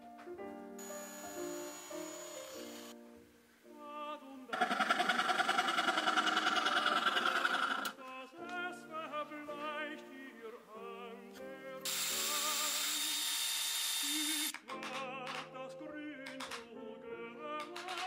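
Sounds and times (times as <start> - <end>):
cordless drill boring into wood: 0.8 - 3.0, 11.9 - 14.6
music with operatic singing: 2.9 - 13.3, 14.0 - 18.0.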